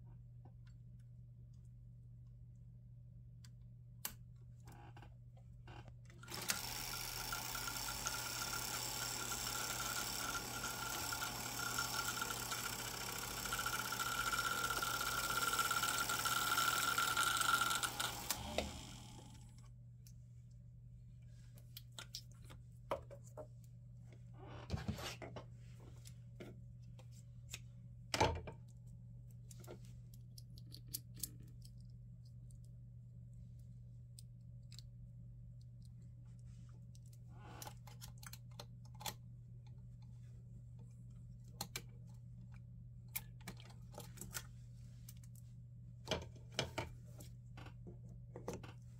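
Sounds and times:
sewing machine whirring: 6.2 - 19.6
small clicks and knocks: 29.4 - 32.8.

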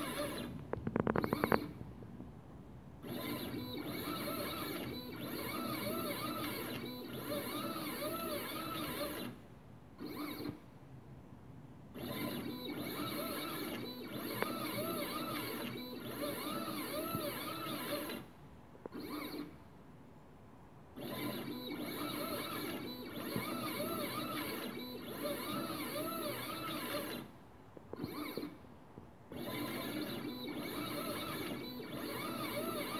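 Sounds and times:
stepper motors whining: 0.0 - 0.5, 3.0 - 9.4, 12.0 - 18.2, 21.0 - 27.3, 29.3 - 32.9.

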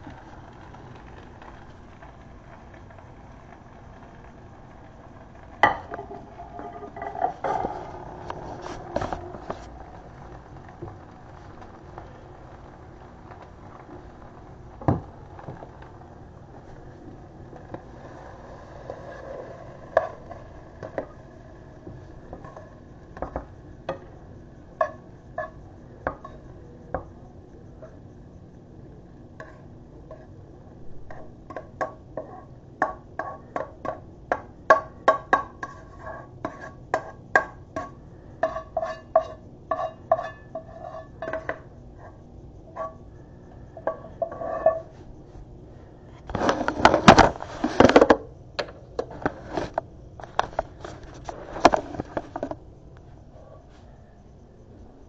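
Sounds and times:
clattering scrape: 5.6 - 9.8, 38.4 - 43.0, 43.9 - 45.1, 46.2 - 48.2, 49.0 - 52.6.

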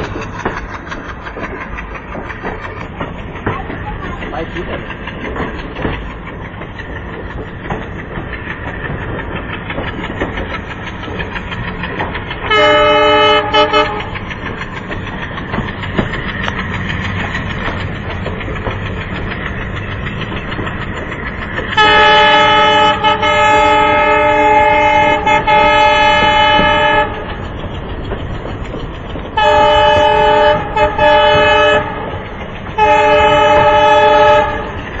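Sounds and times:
coaches clattering on rails: 0.0 - 35.0
locomotive air horn blasts: 12.5 - 14.1, 21.8 - 27.2, 29.4 - 32.1, 32.8 - 34.8.

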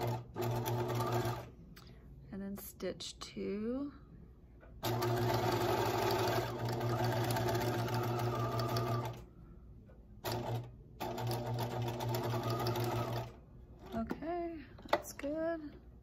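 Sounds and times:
sewing machine running: 0.0 - 1.5, 4.8 - 9.2, 10.2 - 14.0.

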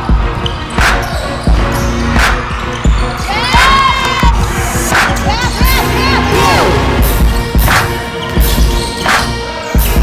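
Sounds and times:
crowd shouting and cheering: 0.0 - 10.0
music playing: 0.0 - 10.0
shoe squeals: 0.4 - 3.8, 8.2 - 10.0.

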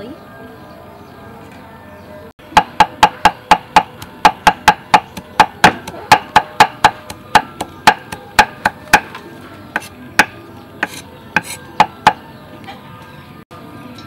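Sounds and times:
cleaver chopping on wooden board: 2.5 - 9.2, 9.8 - 12.2.

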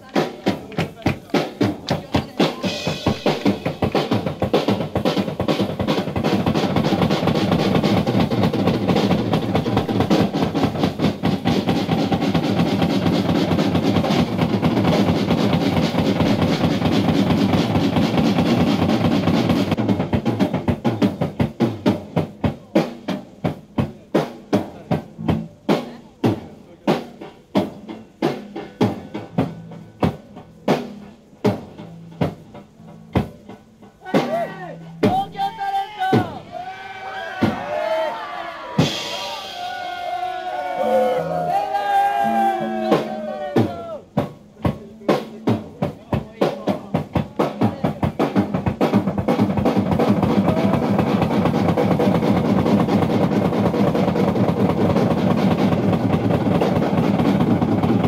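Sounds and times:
fast drum roll: 0.0 - 58.0
single drum strokes: 0.2 - 35.5
ringing cymbals: 2.6 - 4.5.

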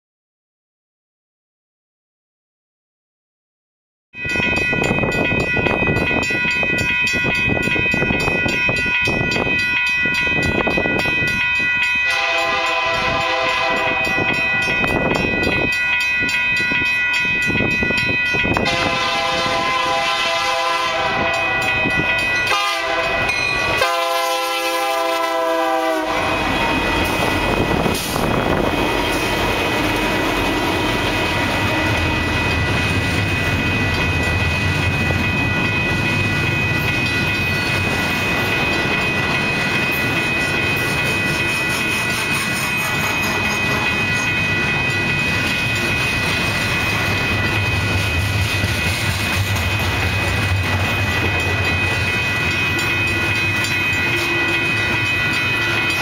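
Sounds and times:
diesel locomotives running: 4.3 - 56.0
train horn blasts: 12.1 - 14.5, 18.6 - 21.8, 22.4 - 27.3
train wheels clattering on rails: 26.3 - 56.0.

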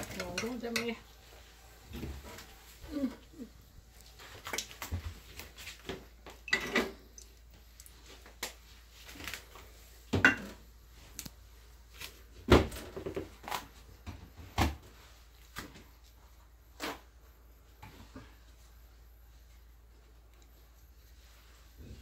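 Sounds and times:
utensils and dishes clattering: 0.0 - 1.0, 6.4 - 7.0.

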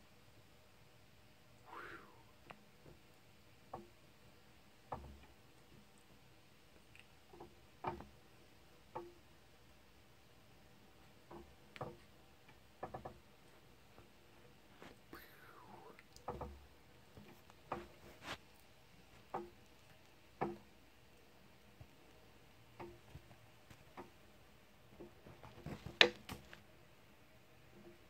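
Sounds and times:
faint handling clicks and taps: 10.9 - 15.1, 16.0 - 26.6.

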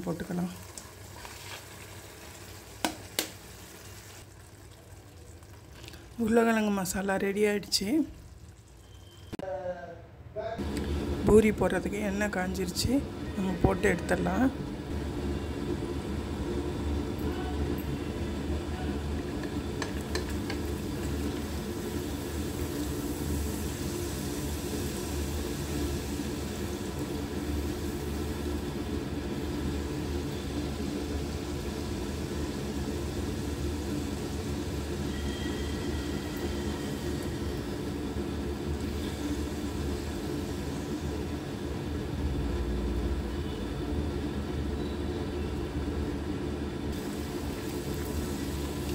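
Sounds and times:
food sizzling in hot oil: 0.0 - 9.4, 18.0 - 43.3, 46.8 - 48.9.

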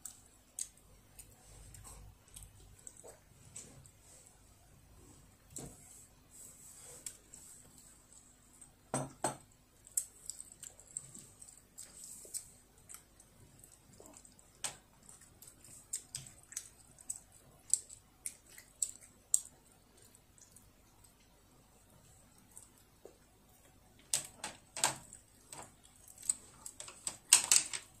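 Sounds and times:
soft chewing: 0.0 - 28.0.

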